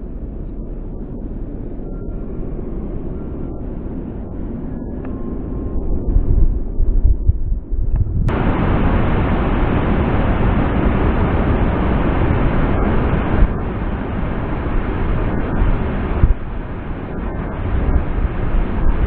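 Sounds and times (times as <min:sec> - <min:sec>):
waterfall rushing: 0:08.3 - 0:19.0.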